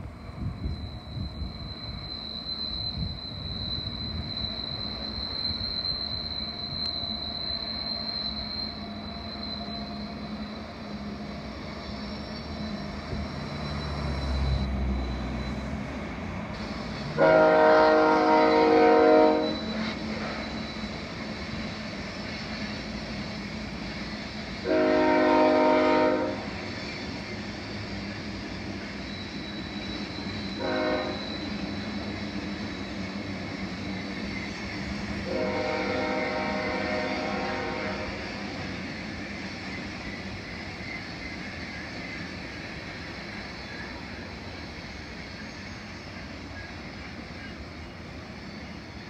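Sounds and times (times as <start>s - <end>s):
rumble of passing train: 0.0s - 49.0s
locomotive air horn blasts: 17.2s - 20.0s, 24.6s - 26.5s, 30.6s - 31.3s, 35.2s - 38.2s.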